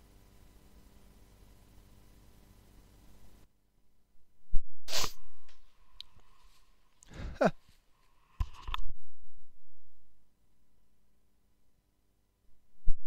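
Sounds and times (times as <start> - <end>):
person sneezing: 4.9 - 5.3, 7.1 - 7.6.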